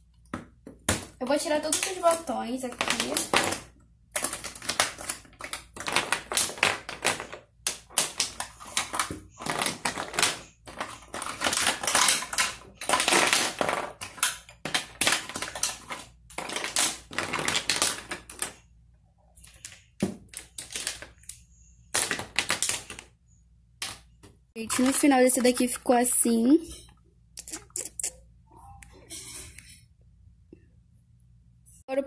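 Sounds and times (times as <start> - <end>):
plastic cosmetic cases clicking: 1.6 - 18.6.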